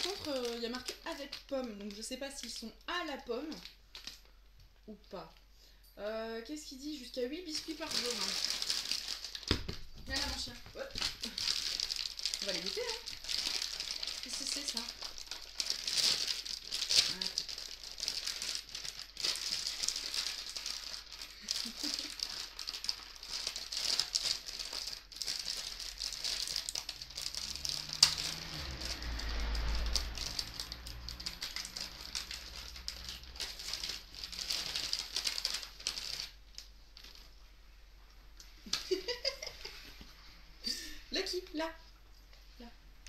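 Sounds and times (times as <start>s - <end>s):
crinkly plastic bag rummaged: 0.0s - 4.4s, 6.9s - 37.4s, 38.6s - 39.9s
hard biscuits rattling: 10.3s - 28.7s, 30.0s - 36.4s.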